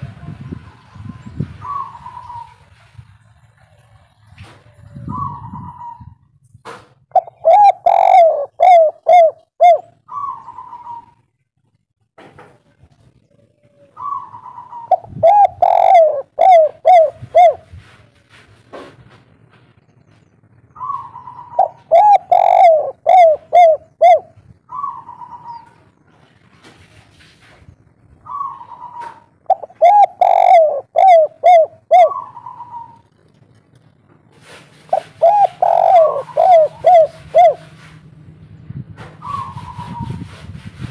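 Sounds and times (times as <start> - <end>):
dove cooing: 1.6 - 2.7, 4.7 - 6.2, 7.1 - 11.2, 13.3 - 18.0, 20.8 - 25.9, 28.2 - 33.3, 34.4 - 37.9, 39.2 - 40.3.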